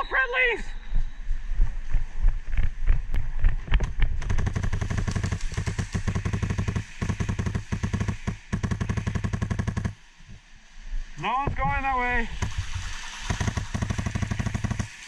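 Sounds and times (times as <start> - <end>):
airsoft rifle firing full-auto: 4.2 - 10.0, 13.3 - 15.0.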